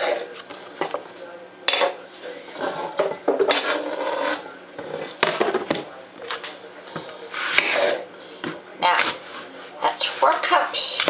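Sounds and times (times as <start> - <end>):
scraping on plastic cutting board: 2.6 - 5.7, 7.3 - 8.0.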